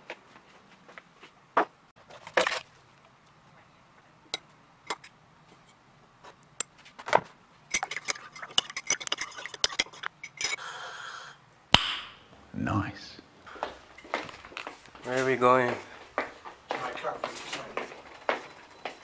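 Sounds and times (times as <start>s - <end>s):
teaspoon clinking against mug: 7.7s - 10.6s.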